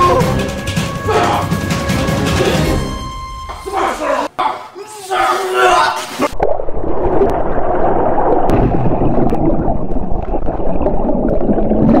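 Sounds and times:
muffled underwater rushing water: 0:06.3 - 0:12.0.

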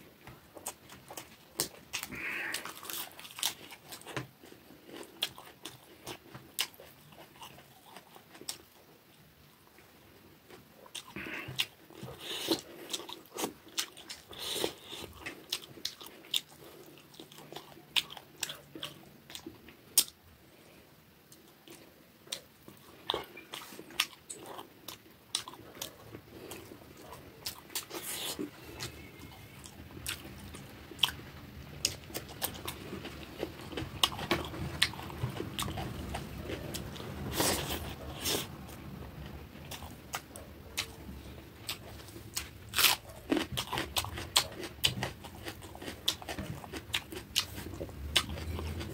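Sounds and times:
wet chewing and lip smacking: 0:39.6 - 0:48.9.

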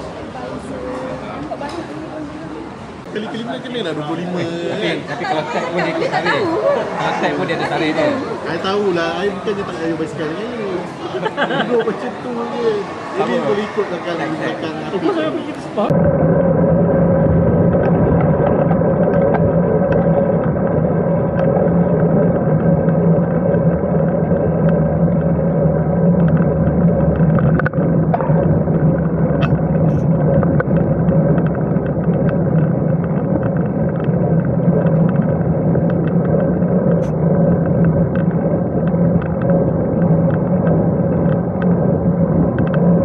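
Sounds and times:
tyres rumbling on road: 0:00.0 - 0:43.0
wind rush: 0:15.7 - 0:43.0
faint ticks from road bumps: 0:17.7 - 0:43.0.

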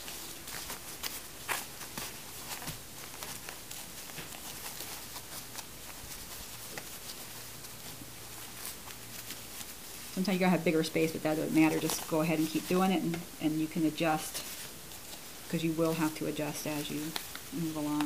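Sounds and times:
diapers rustling and crinkling: 0:00.0 - 0:18.0
faint low hum: 0:00.0 - 0:18.0.

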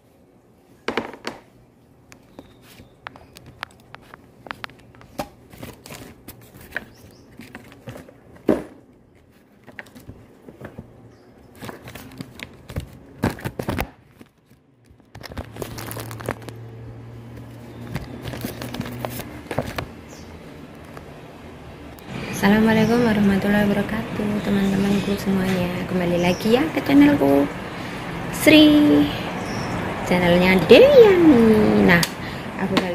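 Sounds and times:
phone handling rustling: 0:02.4 - 0:16.7, 0:17.3 - 0:21.1.

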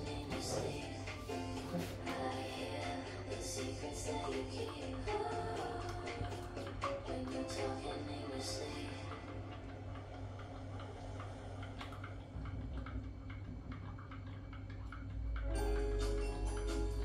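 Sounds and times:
music: 0:00.0 - 0:10.1, 0:15.4 - 0:17.0.

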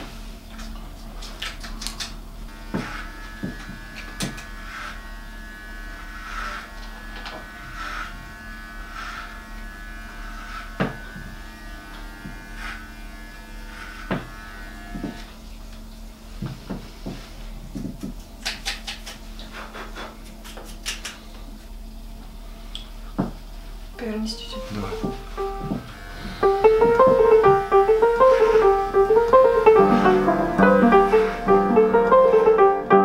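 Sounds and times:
electric hair clippers buzzing: 0:02.5 - 0:15.4, 0:24.6 - 0:30.7.

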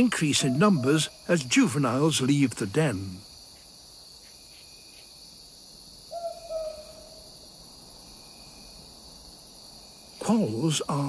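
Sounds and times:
owl hooting: 0:06.1 - 0:07.2.

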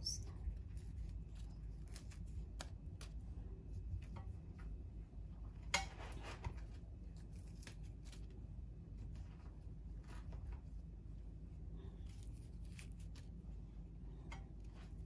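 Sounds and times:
low steady hum: 0:00.0 - 0:15.0
flatbread tearing crackles: 0:00.5 - 0:03.2, 0:06.2 - 0:11.0, 0:11.8 - 0:13.6.

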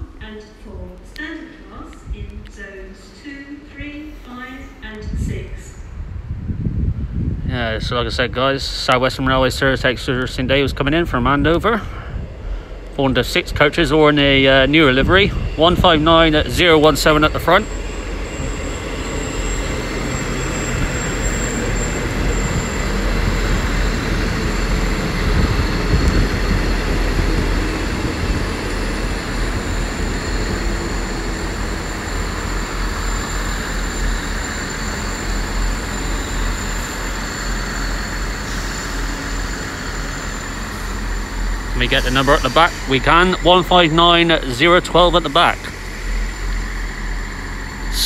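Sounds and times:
diesel train engine: 0:00.0 - 0:48.0
train wheels on rails: 0:08.6 - 0:48.0
thin high steady tone: 0:28.6 - 0:48.0.

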